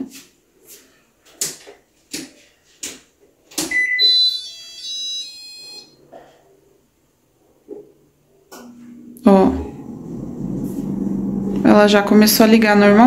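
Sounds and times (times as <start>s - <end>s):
refrigerator power-on chime beeps: 3.7s - 6.0s
faint low hum: 8.4s - 13.0s.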